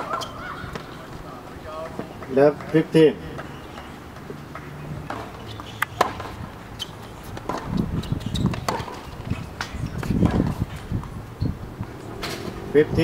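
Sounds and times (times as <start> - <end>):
tennis ball bouncing on hard court: 1.9 - 11.2
racket hitting tennis ball: 3.4 - 11.1.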